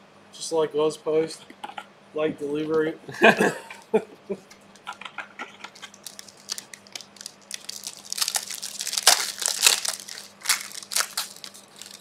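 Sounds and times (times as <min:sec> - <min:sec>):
card pack wrappers ripping: 0:05.6 - 0:12.0.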